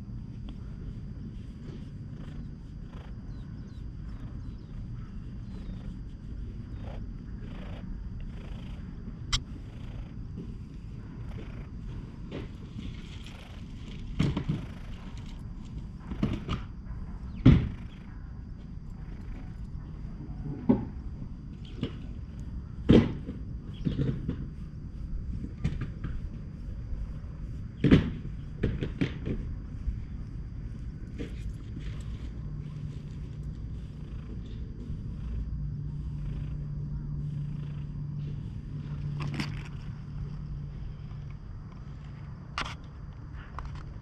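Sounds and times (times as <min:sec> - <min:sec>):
hand rubbing on microphone: 0:00.4 - 0:13.8
cat purring: 0:00.5 - 0:42.0.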